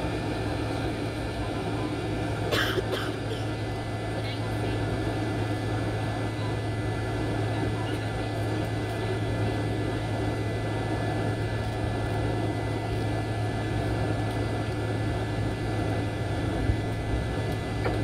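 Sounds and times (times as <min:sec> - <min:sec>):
airliner cabin engine hum: 0:00.0 - 0:18.0.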